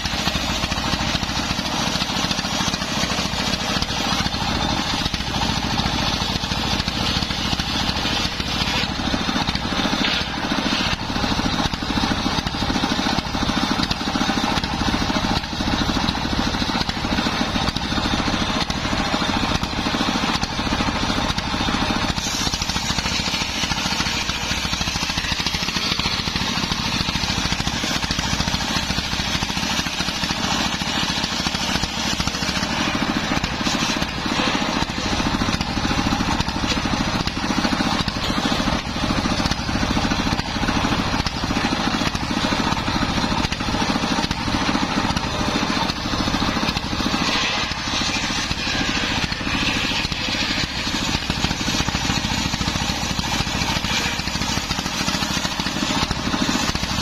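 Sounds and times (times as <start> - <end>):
diesel engine chugging: 0.0 - 57.0
saw blade cutting wood: 0.0 - 57.0.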